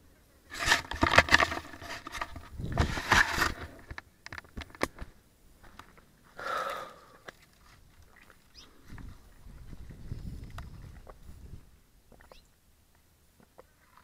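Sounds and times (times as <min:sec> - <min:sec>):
branches scraping against bike: 0:00.5 - 0:05.8.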